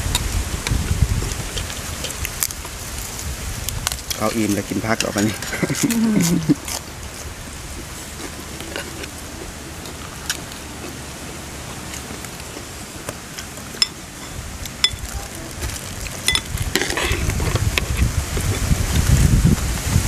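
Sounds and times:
background hiss: 0.0s - 17.2s
spoons clinking on plates: 13.8s - 15.1s, 16.3s - 17.2s.

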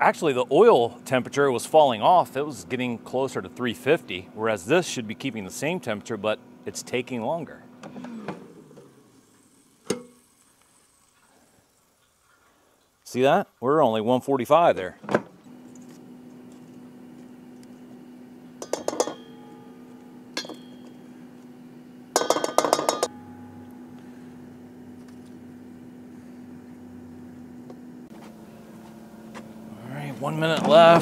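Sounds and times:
steady low hum: 0.0s - 12.0s, 13.0s - 31.0s
metal tongs clinking on metal bowl: 18.6s - 19.4s.

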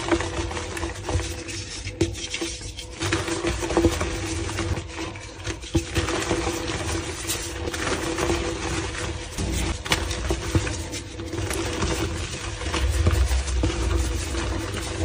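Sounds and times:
chalk crunching and rustling: 0.0s - 15.0s
steady low hum: 9.3s - 15.0s.

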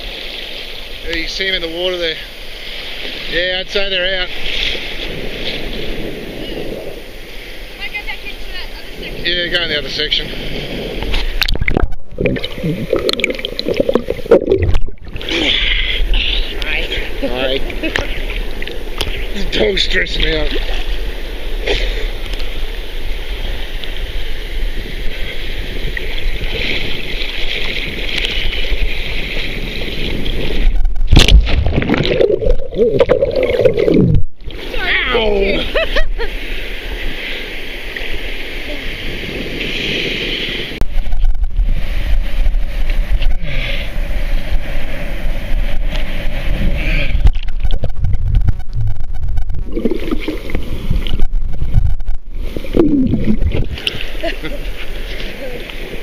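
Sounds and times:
sea water sloshing: 0.0s - 56.0s
muffled underwater gurgling: 10.2s - 21.1s, 25.2s - 35.8s, 45.3s - 54.2s
loud splash: 31.0s - 35.0s.

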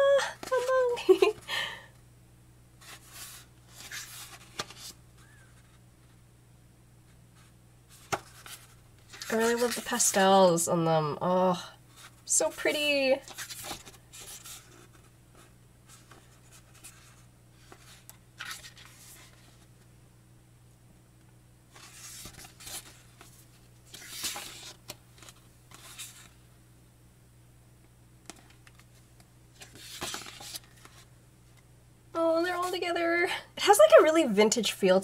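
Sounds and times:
faint low hum: 0.0s - 35.0s
book pages turning: 2.8s - 5.8s, 7.4s - 10.2s, 13.2s - 19.7s, 21.7s - 26.4s, 29.6s - 31.6s.

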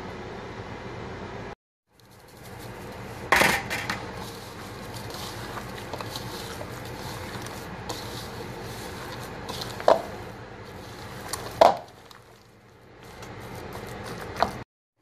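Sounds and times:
breadcrumbs pouring into bowl: 4.0s - 14.6s
hands squishing meat mixture: 4.0s - 14.6s.

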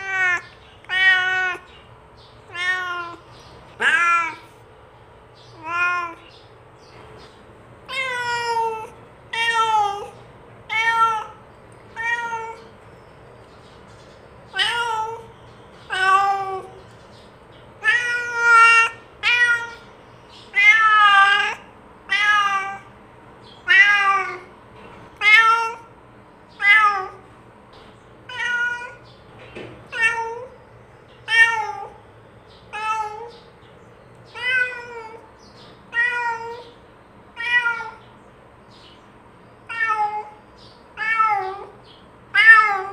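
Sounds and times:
cat meowing: 0.0s - 1.7s, 2.5s - 4.6s, 5.5s - 6.3s, 7.9s - 12.7s, 14.5s - 16.8s, 17.8s - 19.9s, 20.5s - 22.9s, 23.6s - 24.5s, 25.2s - 25.9s, 26.5s - 27.3s, 28.3s - 29.1s, 29.9s - 30.6s, 31.2s - 32.0s, 32.7s - 33.5s, 34.3s - 38.1s, 39.6s - 42.9s.

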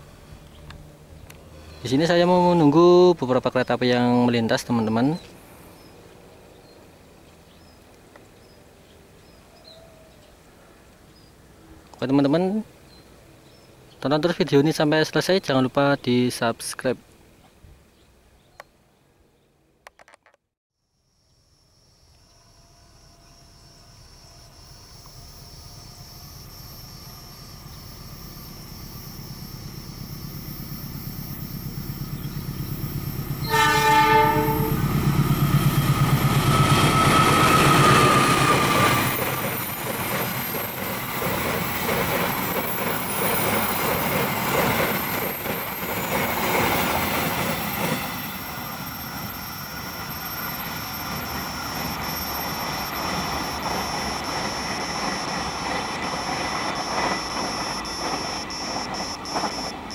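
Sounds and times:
train horn blast: 22.2s - 26.1s, 33.4s - 35.1s
wheel squeal: 23.0s - 59.9s
locomotive engine rumble: 23.4s - 59.9s.

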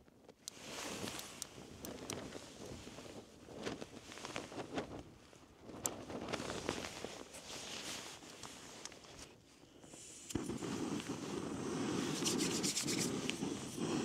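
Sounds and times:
gas burner hissing: 9.8s - 14.0s.

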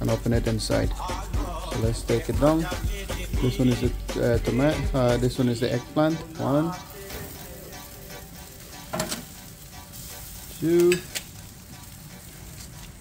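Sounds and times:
gas grill sizzling: 0.0s - 13.0s
metal tongs clack: 10.8s - 11.3s.

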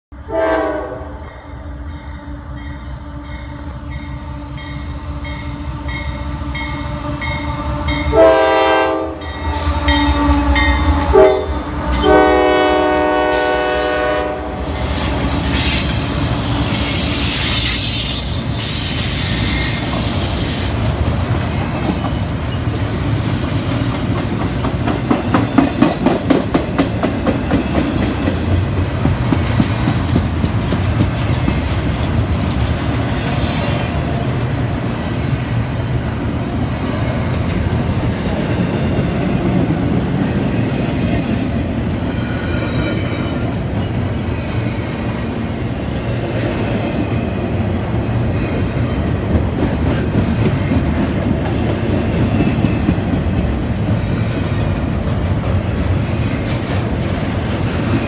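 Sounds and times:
train horn: 0.1s - 17.8s
train rumble: 0.2s - 58.0s
wheels clacking over rail joints: 23.5s - 33.4s.

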